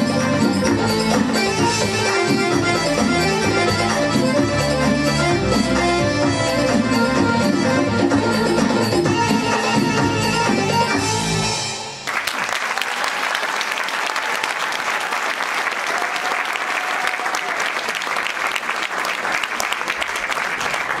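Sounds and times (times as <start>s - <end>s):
audience applause: 12.0s - 21.0s.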